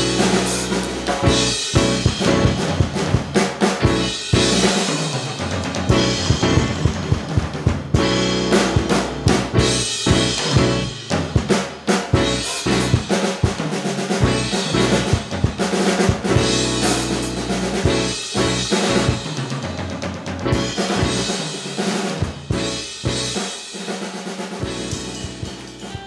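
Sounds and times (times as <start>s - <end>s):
drum kit played with sticks: 0.0s - 26.0s.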